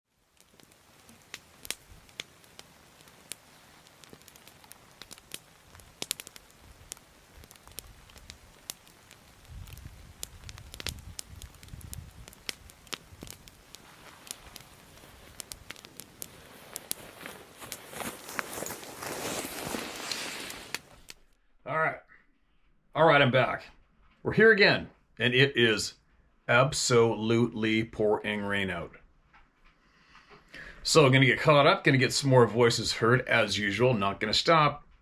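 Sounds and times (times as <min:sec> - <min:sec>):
campfire crackling and popping: 0:00.1 - 0:21.3
footsteps rustling through brush: 0:00.4 - 0:21.1.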